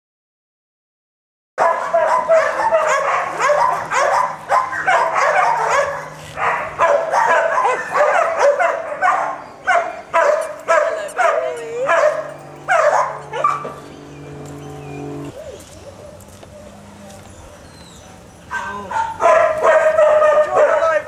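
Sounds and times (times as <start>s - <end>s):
dog barking and yipping: 1.6s - 13.9s, 17.6s - 21.0s.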